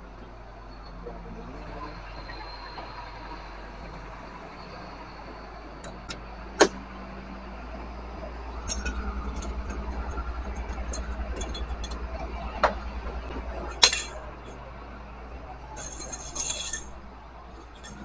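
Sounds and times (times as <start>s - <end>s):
pulsing engine rumble: 0.0s - 18.0s.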